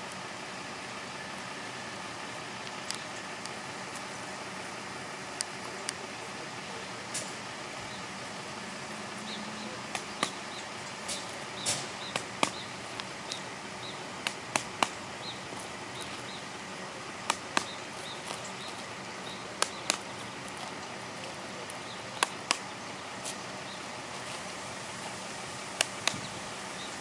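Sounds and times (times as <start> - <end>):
steady hiss: 0.0 - 27.0
faint bird chirps: 9.2 - 14.1.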